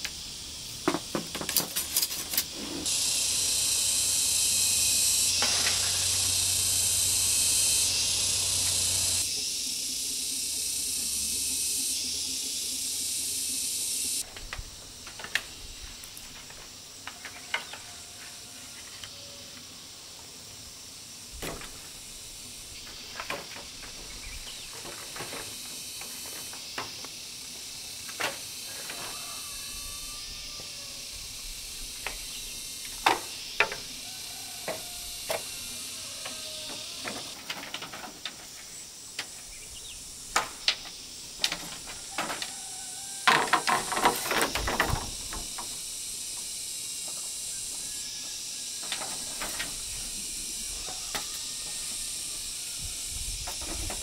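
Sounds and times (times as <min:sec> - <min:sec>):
loud steady high hiss: 0:00.0 - 0:54.0
bamboo poles knocking: 0:43.2 - 0:45.7.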